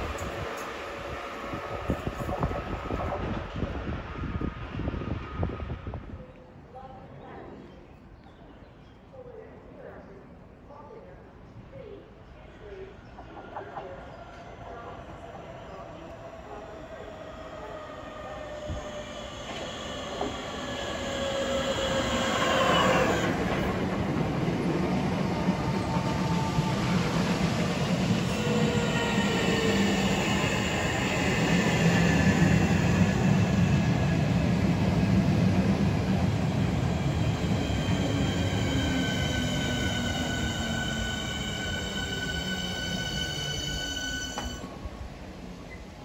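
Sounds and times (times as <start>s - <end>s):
train wheels rumbling on rails: 0.0s - 6.1s, 13.1s - 45.0s.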